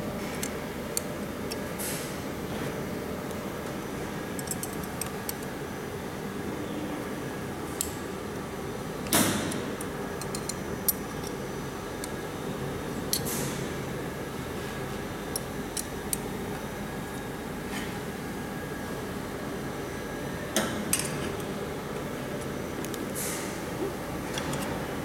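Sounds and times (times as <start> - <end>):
steady machine hum: 0.0 - 25.0
metal tool clicks and taps: 9.1 - 11.4.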